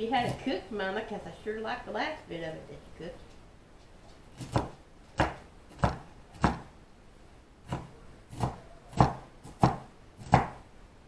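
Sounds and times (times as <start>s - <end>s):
knife chopping on cutting board: 4.4s - 6.7s, 7.6s - 10.6s.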